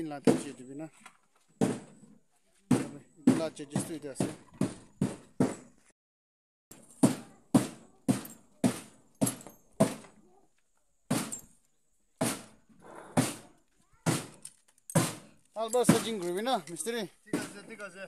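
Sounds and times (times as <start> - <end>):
hammer striking sheet metal: 7.0 - 10.1.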